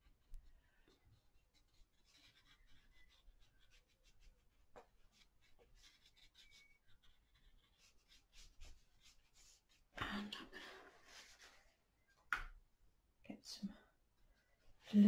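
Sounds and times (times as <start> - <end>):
brush scratching on paper: 0.0 - 9.9, 10.9 - 11.6.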